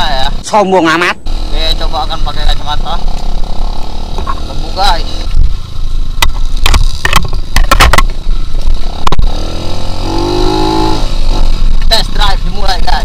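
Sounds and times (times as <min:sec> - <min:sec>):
motorcycle engine running: 0:00.0 - 0:13.0
sharp knocks: 0:06.2 - 0:08.2.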